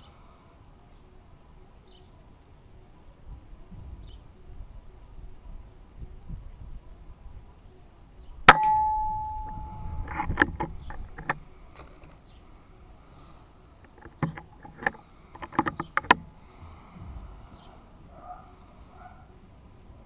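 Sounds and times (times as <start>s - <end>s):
sharp metallic clicks: 8.5s - 11.5s, 13.7s - 16.5s.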